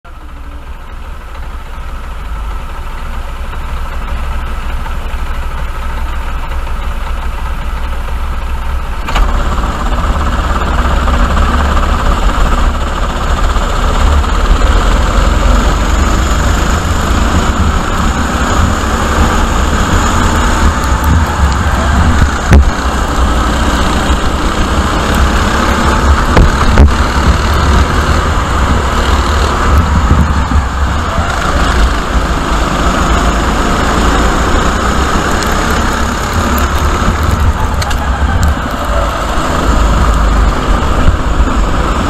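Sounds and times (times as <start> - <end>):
kart engines accelerating: 9.0 - 42.0.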